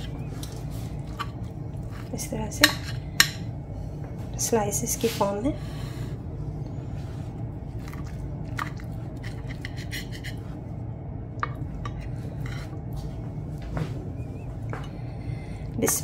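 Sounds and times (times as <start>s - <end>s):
low background hum: 0.0s - 16.0s
knife scraping on plate: 9.2s - 10.4s, 12.0s - 12.8s.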